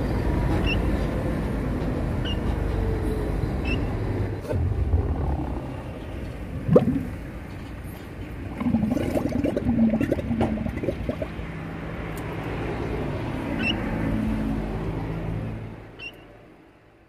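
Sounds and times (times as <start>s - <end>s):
camel rumbling: 4.4s - 11.3s.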